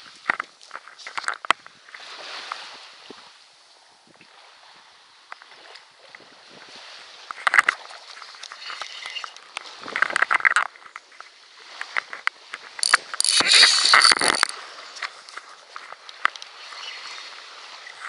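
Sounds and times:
rustling and scraping handling noise: 0.2 - 1.7, 7.3 - 17.0
small clicks: 8.4 - 16.9.

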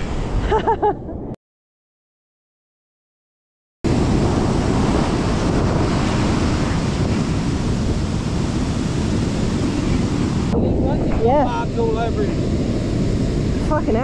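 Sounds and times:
surf breaking on beach: 3.9 - 14.0
wind buffeting microphone: 3.9 - 14.0.

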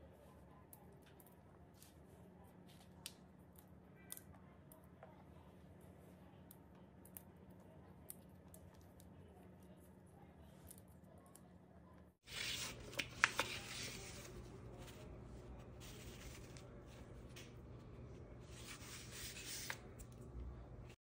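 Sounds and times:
steady low hum: 4.4 - 21.0
paper liner rustling: 12.3 - 20.3.

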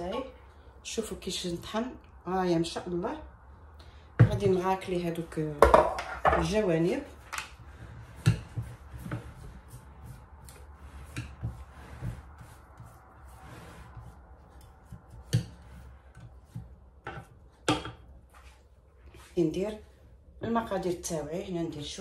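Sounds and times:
spatula scraping steel bowl: 6.0 - 17.4.

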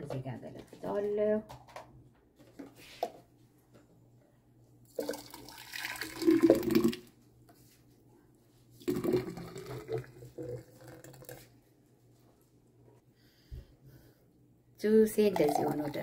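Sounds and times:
thick juice pouring into pitcher: 4.9 - 7.1, 8.8 - 11.6, 15.3 - 16.0.

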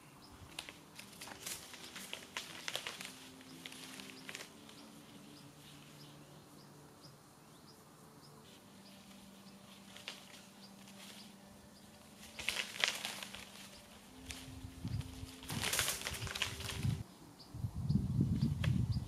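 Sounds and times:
small bird chirping: 0.0 - 19.0
sharp clicks and rustles: 0.5 - 5.2, 9.0 - 17.0.

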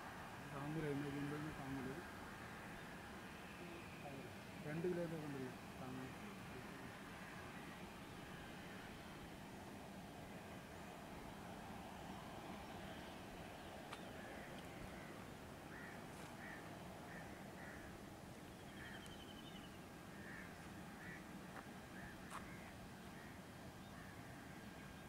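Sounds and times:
faint steady rush: 0.0 - 25.0
birds calling: 12.5 - 25.0.

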